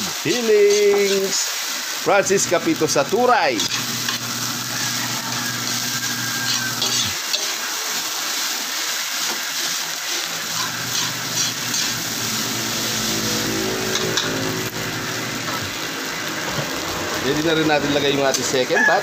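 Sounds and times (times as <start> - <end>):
metal spatula scraping wok: 0.0 - 1.4, 3.6 - 7.7, 9.2 - 15.6
rice sizzling in a wok: 0.0 - 19.0
vehicle engine hum: 12.0 - 17.9.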